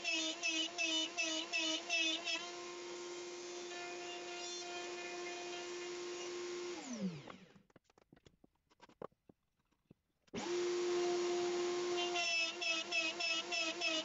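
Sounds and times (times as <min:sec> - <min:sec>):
router running: 0:00.0 - 0:07.6, 0:10.4 - 0:14.0
router spinning down whine: 0:00.0 - 0:07.6, 0:10.4 - 0:14.0
dust extraction: 0:02.5 - 0:07.4.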